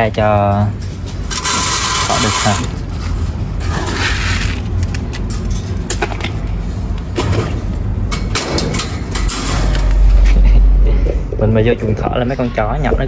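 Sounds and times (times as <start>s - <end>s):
wire cage rattling and clinking: 0.4s - 6.3s, 8.1s - 10.2s
steady low rumble: 2.8s - 13.0s.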